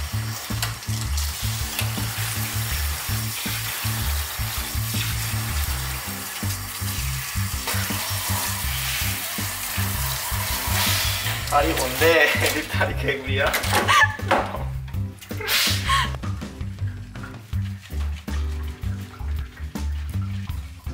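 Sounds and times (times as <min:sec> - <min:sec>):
background music with a beat: 0:00.0 - 0:11.2, 0:13.9 - 0:20.9
shower head spraying water: 0:00.0 - 0:20.9.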